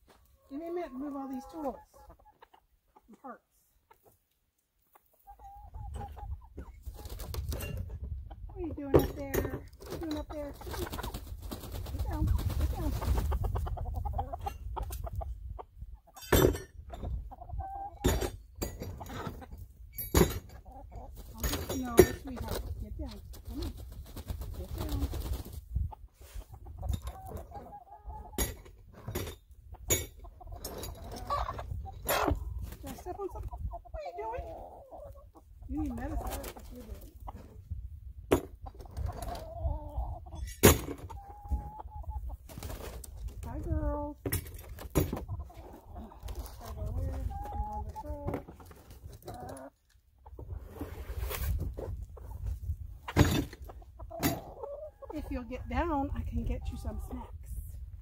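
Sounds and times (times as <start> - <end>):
hens clucking: 0.0 - 16.2, 16.8 - 19.9, 20.5 - 50.8, 51.6 - 57.9
wind buffeting microphone: 11.4 - 16.0, 22.6 - 27.4, 51.5 - 54.1.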